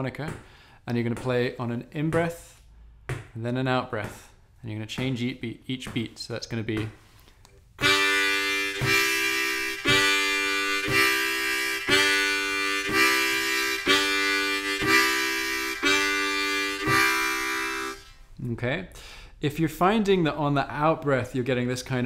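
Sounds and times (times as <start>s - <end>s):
harmonica playing chords: 7.8s - 18.2s.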